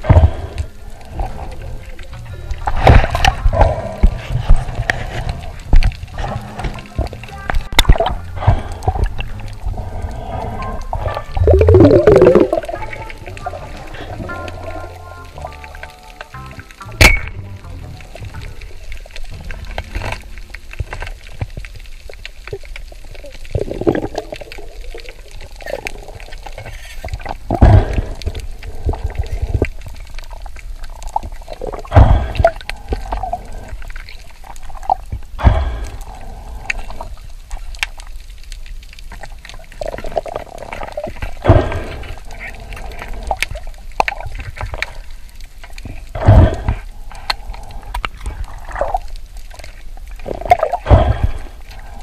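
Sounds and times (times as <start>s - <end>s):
underwater rumble and gurgle: 0.0s - 52.0s
deep water swash: 27.2s - 37.5s, 39.7s - 52.0s.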